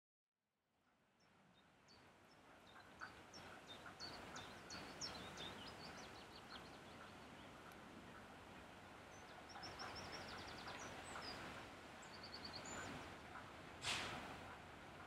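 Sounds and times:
birds chirping and trilling: 1.2 - 13.6
distant diesel locomotive rumble: 1.9 - 15.0
burst of noise: 13.8 - 14.4.

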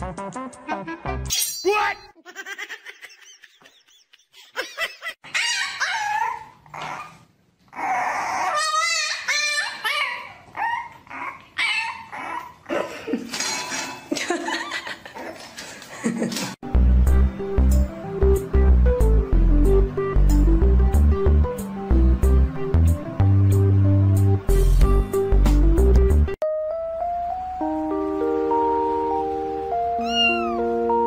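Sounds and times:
dog barking and whining: 5.2 - 12.7.

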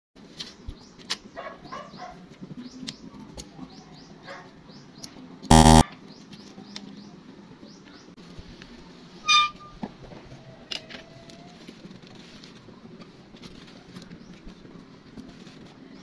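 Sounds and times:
harsh buzzer tone: 5.5 - 5.8.

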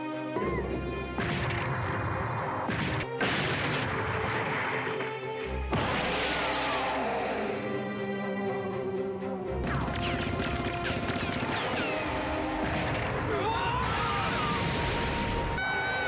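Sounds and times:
background music: 0.0 - 16.0
cartoon wood smashing: 2.6 - 7.5.

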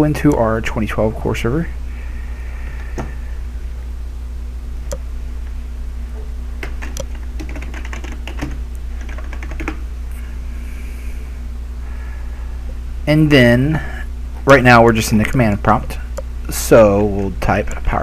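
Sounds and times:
steady low hum: 0.0 - 18.0
computer keyboard typing: 6.6 - 9.8.

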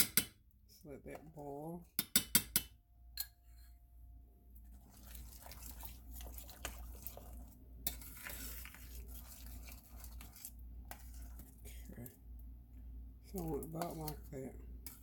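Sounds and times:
spoon scraping a steel pan: 7.8 - 11.4, 13.4 - 15.0.

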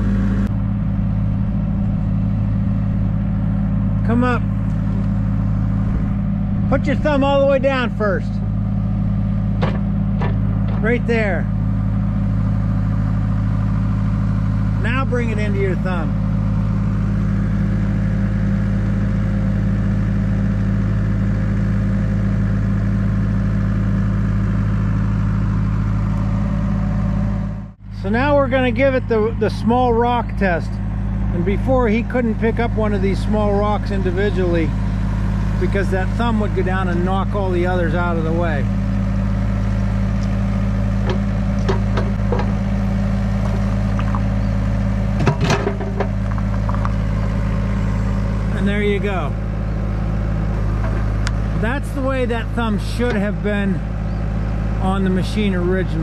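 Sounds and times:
diesel engine running: 0.0 - 56.0
hydraulics moving bucket: 40.1 - 47.2, 50.3 - 53.8.

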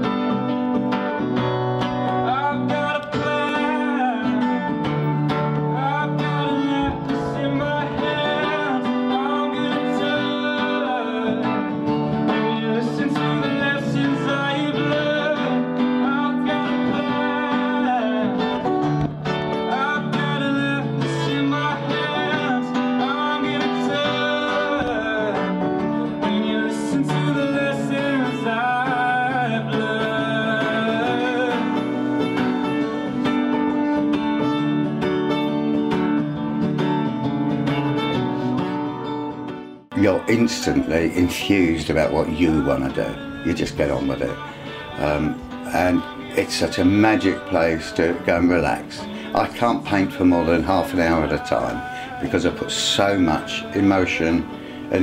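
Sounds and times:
acoustic guitar song: 0.0 - 55.0
person singing: 1.8 - 34.6, 39.9 - 55.0.

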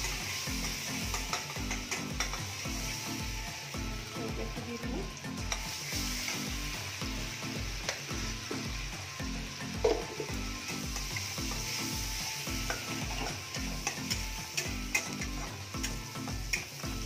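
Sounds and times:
garlic sizzling in hot oil: 0.0 - 17.0
spatula clinking on pan: 0.6 - 2.6.

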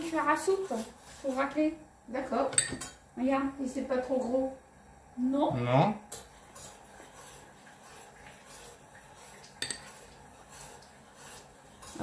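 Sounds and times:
metal spoon scraping pudding: 6.2 - 12.0.

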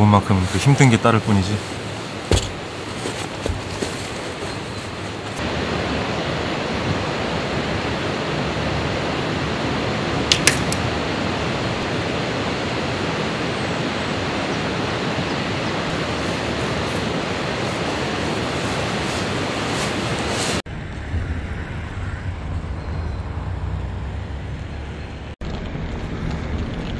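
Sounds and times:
waterfall rushing: 5.4 - 20.6
sharp clicks: 10.3 - 10.8.

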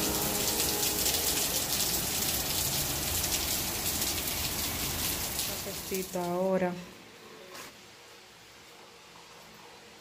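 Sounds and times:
heavy rain on pavement: 0.0 - 6.4.

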